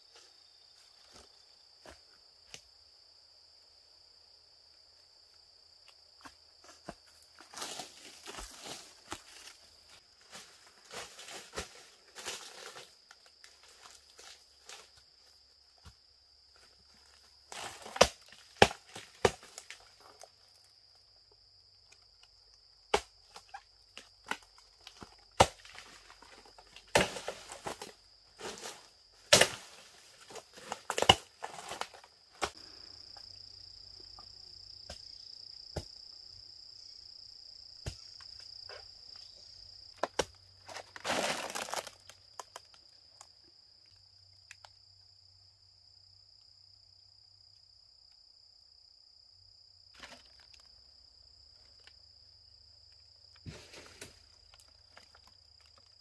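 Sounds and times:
dry palm fronds crackling underfoot: 7.4 - 15.0, 24.3 - 32.5, 40.0 - 42.8
high insect buzz: 31.7 - 42.6.

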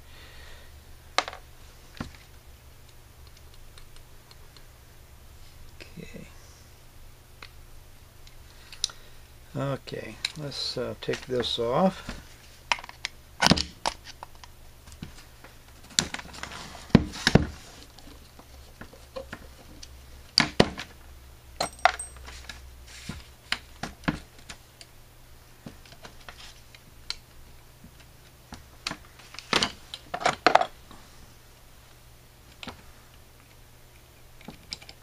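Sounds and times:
metallic clicks and clinks: 21.6 - 22.3
tools set down on table: 21.6 - 22.6.

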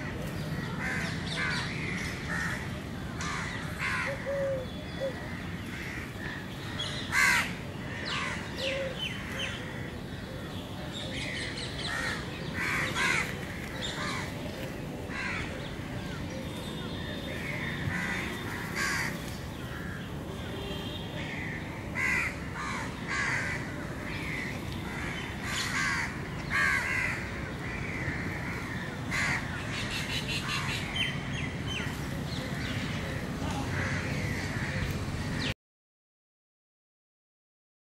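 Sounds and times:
crows cawing: 0.6 - 5.1, 5.7 - 9.9, 11.8 - 14.3, 15.1 - 15.6, 17.4 - 20.1, 21.2 - 29.8, 33.6 - 35.5.

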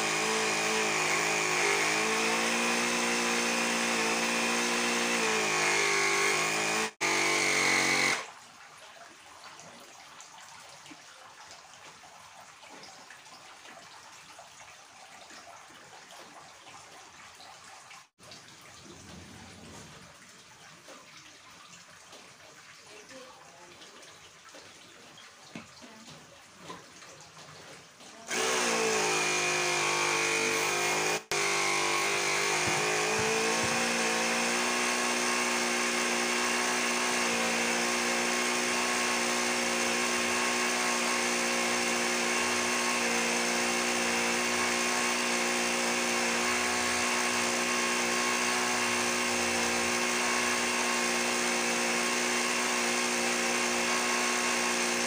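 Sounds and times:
air compressor motor droning: 28.3 - 55.0.

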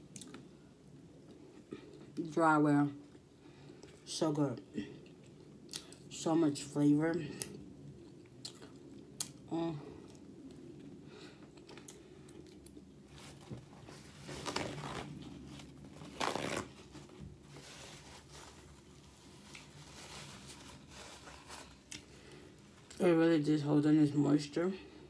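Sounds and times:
low steady hum: 0.0 - 25.0
paper napkin rustling: 13.1 - 22.8.

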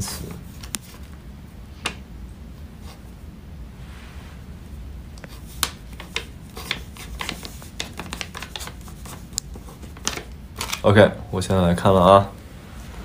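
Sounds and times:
soft rustle: 2.8 - 7.8.

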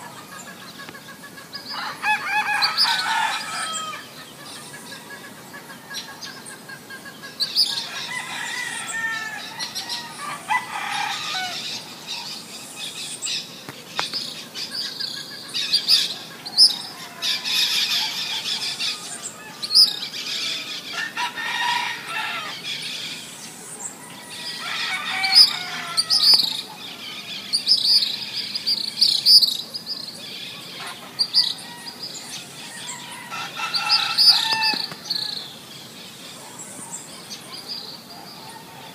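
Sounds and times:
birds chirping: 0.0 - 38.9
rooster crowing: 1.7 - 4.1, 7.8 - 11.8, 16.5 - 22.7, 24.0 - 26.4, 30.8 - 35.5, 38.4 - 38.9.

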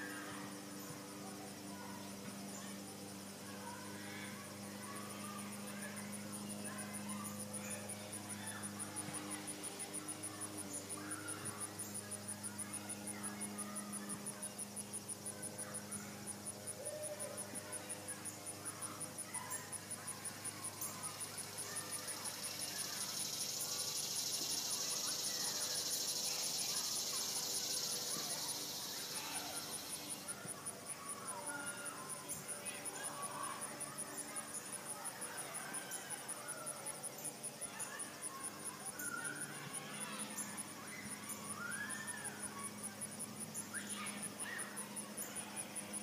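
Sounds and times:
loud high insect buzz: 0.0 - 36.4
insects chirping: 0.0 - 46.0.

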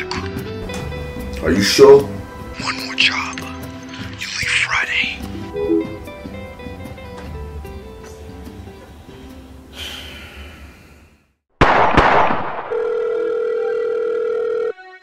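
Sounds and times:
background music: 0.0 - 10.0, 13.7 - 15.0.

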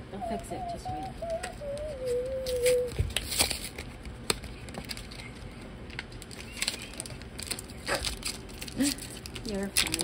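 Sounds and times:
foil pack crinkling: 2.2 - 10.0.

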